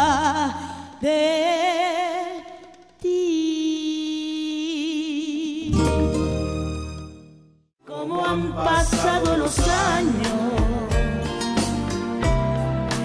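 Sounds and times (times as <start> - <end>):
woman singing with vibrato: 0.0 - 5.8, 7.8 - 11.1
backing music: 5.7 - 7.4, 8.0 - 13.0.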